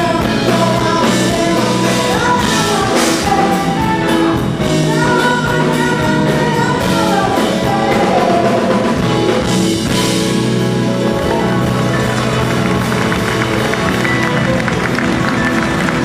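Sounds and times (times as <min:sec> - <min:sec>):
woman singing: 0:00.0 - 0:09.5
live band playing jazzy pop: 0:00.0 - 0:16.0.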